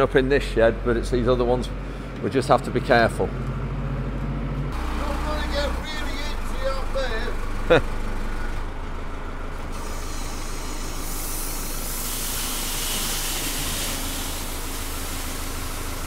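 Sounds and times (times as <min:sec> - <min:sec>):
engine running: 0:00.0 - 0:16.0
grain pouring: 0:09.9 - 0:16.0.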